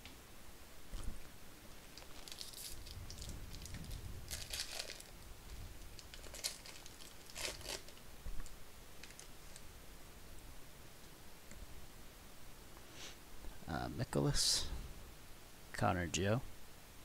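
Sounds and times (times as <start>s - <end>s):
foil wrapper crinkling and tearing: 1.9s - 5.2s, 5.9s - 8.0s, 9.0s - 9.6s.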